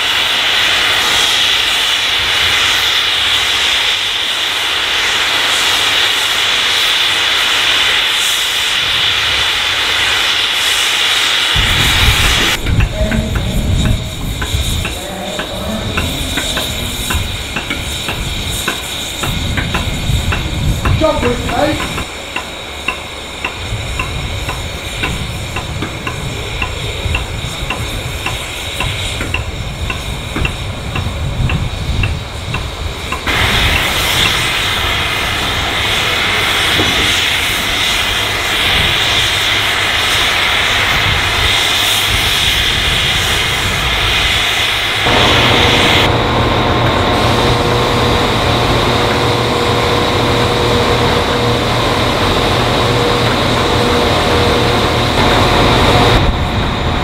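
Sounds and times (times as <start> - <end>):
steam hissing: 0.0 - 57.0
low rumble: 11.6 - 34.2, 45.0 - 57.0
faint regular ticking: 12.6 - 33.3.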